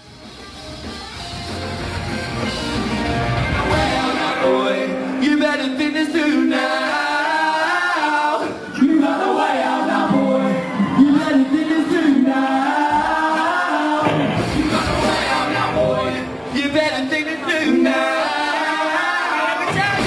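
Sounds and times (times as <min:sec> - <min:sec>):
bass and drums: 0:00.0 - 0:04.7, 0:10.8 - 0:18.6, 0:19.6 - 0:20.0
band voices singing together: 0:03.0 - 0:20.0.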